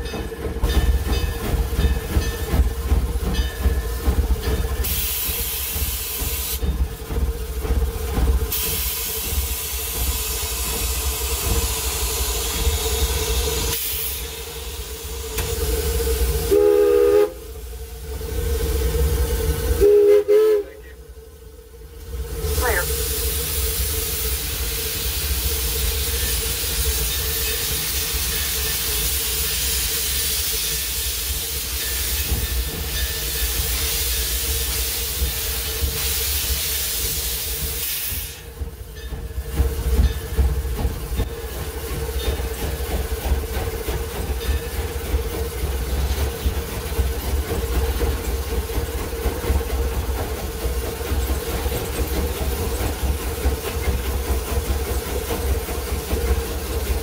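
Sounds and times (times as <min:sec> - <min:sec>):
locomotive engine rumbling: 0:00.0 - 0:57.0
loud steam hiss: 0:03.9 - 0:06.7, 0:07.4 - 0:20.9, 0:22.1 - 0:57.0
rattle and clatter: 0:38.6 - 0:57.0.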